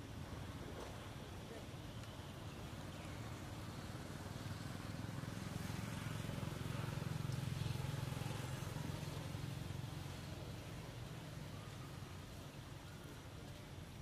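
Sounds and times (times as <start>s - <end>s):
motor vehicle passing: 2.5s - 13.3s.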